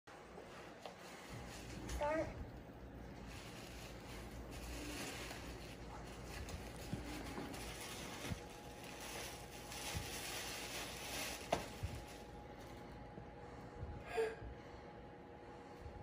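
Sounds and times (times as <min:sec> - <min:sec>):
tissue paper rustling: 0:00.4 - 0:12.8.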